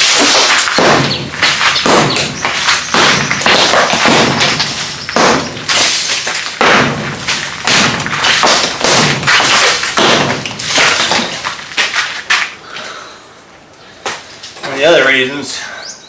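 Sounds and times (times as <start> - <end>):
masonry crumbling and clattering: 0.0 - 12.6.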